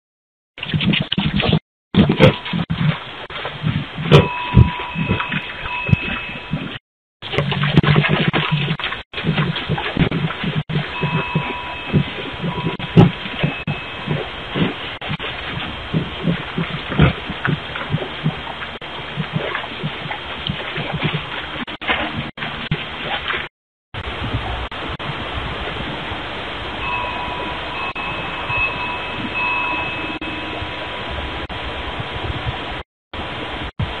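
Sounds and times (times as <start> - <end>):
animal grunts: 15.5 - 18.5
microphone hiss: 24.1 - 34.0
faint thin high tone: 26.8 - 31.0.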